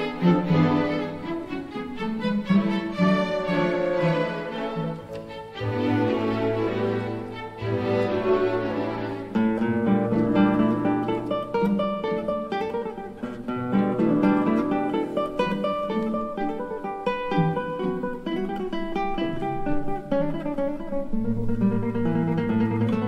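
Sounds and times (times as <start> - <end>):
orchestra holding low notes: 0.0 - 11.4
classical guitar solo: 0.0 - 23.0.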